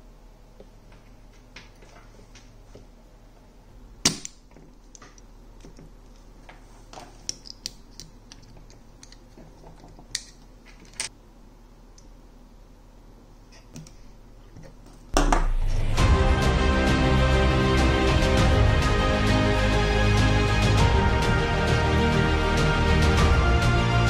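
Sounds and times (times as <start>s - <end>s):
loud music: 15.3s - 24.0s.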